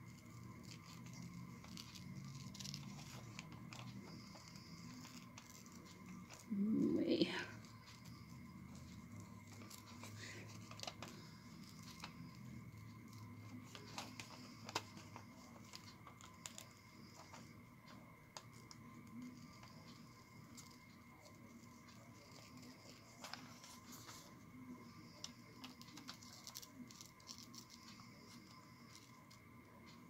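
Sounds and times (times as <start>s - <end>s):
paper rustling: 0.0s - 6.5s, 8.8s - 17.5s, 18.3s - 24.4s
small scissors snipping paper: 0.1s - 6.5s, 25.2s - 29.4s.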